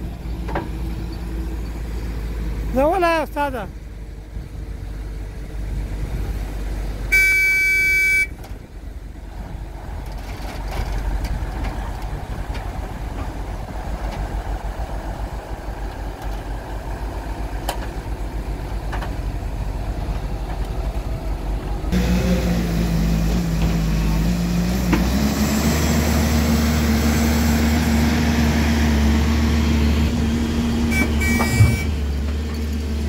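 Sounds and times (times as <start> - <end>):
heavy diesel engines rumbling: 0.0 - 33.0
vehicle horn: 7.1 - 8.4, 30.9 - 32.0.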